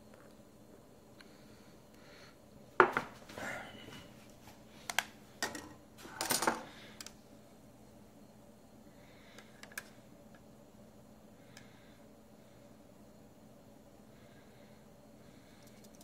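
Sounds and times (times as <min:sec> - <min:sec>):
cup knocks: 0:02.8 - 0:03.1.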